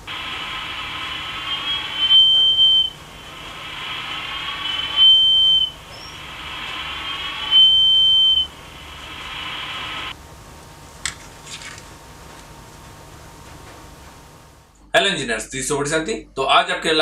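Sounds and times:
tinny hiss with wavering tones: 0.0 - 10.1
high steady beep from speaker: 1.1 - 9.1.

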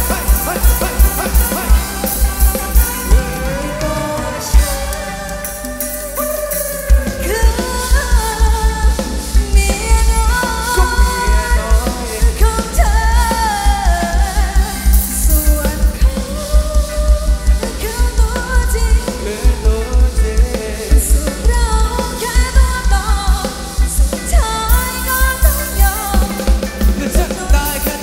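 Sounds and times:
heavy bass beat: 0.0 - 13.2
person singing melody: 0.0 - 23.5.

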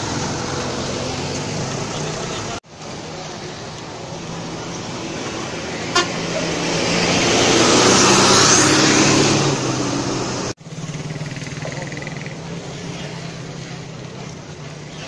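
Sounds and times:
bus diesel engine passing: 0.0 - 15.0
traffic: 0.0 - 15.0.

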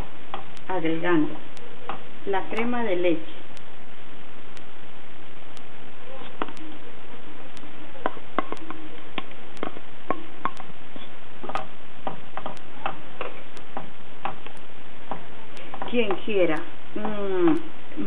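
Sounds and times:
faint even ticking: 7.6 - 17.8.

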